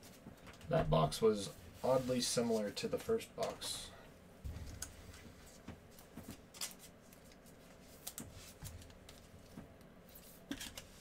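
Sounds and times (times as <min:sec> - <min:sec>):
cards rustling: 0:04.8 - 0:11.0
crinkling card pack: 0:06.0 - 0:09.3.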